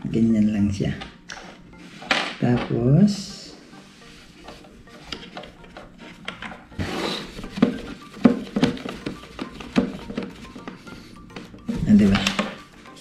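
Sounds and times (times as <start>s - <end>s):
plastic clicks taps and rubbing: 7.5s - 11.6s.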